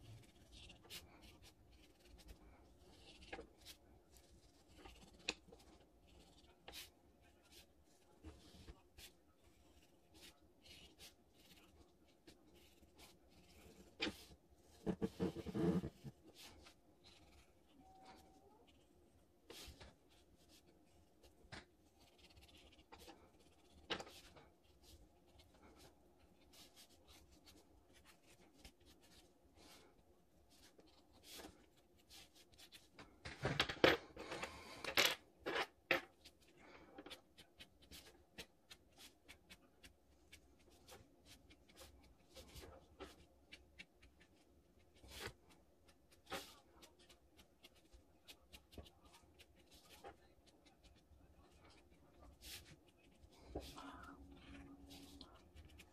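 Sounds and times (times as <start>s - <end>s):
pen scratching on card: 8.4s - 17.5s.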